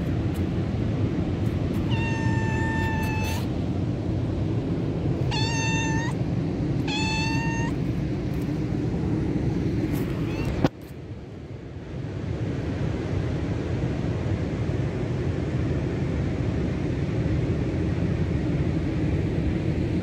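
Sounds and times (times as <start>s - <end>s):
low steady rumble: 0.0s - 20.0s
cat meowing: 1.7s - 3.5s, 5.2s - 6.2s, 6.8s - 7.8s, 10.1s - 10.7s.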